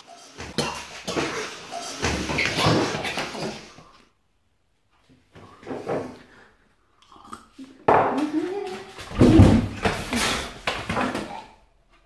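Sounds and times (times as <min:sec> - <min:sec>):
throat and mouth sounds: 0:07.0 - 0:11.6.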